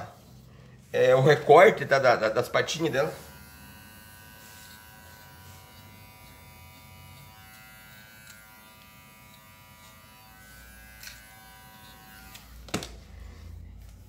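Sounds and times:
pet trimmer buzzing: 2.6s - 12.9s.

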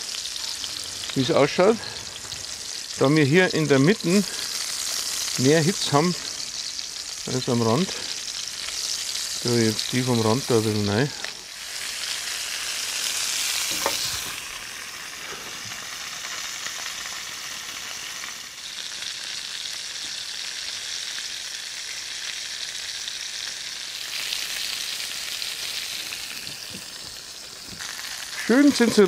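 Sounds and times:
food sizzling in a pot: 0.0s - 29.0s.

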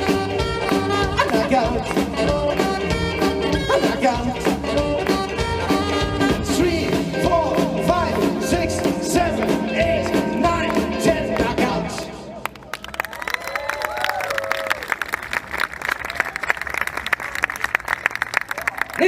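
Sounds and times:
rockabilly band playing: 0.0s - 12.4s.

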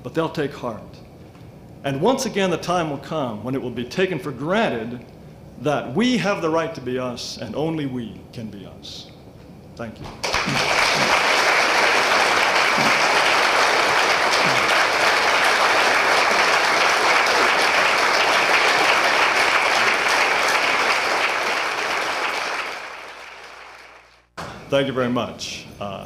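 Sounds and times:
audience applauding: 10.2s - 24.3s.

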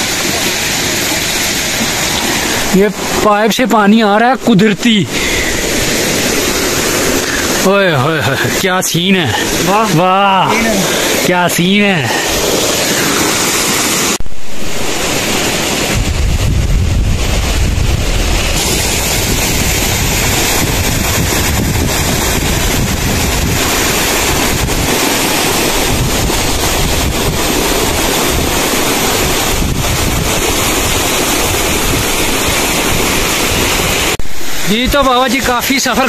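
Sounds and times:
waterfall rushing: 0.0s - 36.0s
wind buffeting microphone: 15.8s - 34.2s.

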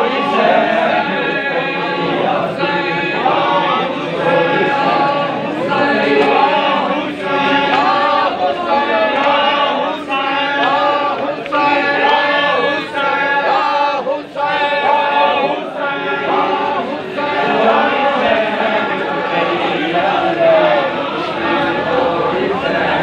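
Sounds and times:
men chanting together: 0.0s - 23.0s.

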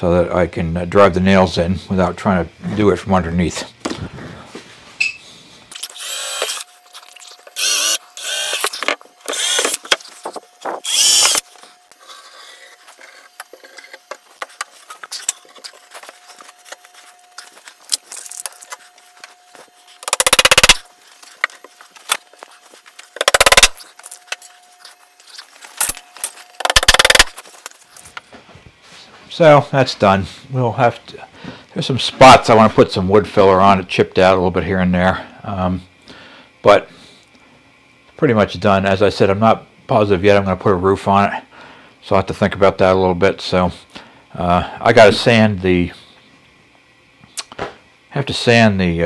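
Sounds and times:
cordless drill boring plywood: 5.8s - 6.7s, 7.5s - 9.9s, 10.8s - 11.4s, 20.0s - 20.8s, 23.2s - 23.8s, 26.6s - 27.3s
hammer driving nails: 20.0s - 20.8s, 23.2s - 23.8s, 26.6s - 27.4s.

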